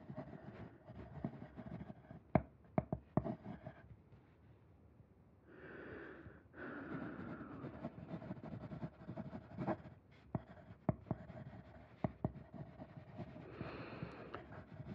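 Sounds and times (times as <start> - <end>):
person breathing hard: 5.5 - 7.9, 13.4 - 14.5.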